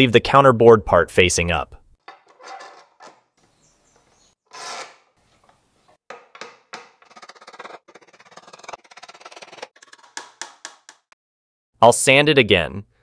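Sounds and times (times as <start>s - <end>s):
metal clamp jaws scraping: 2.1s - 5.6s.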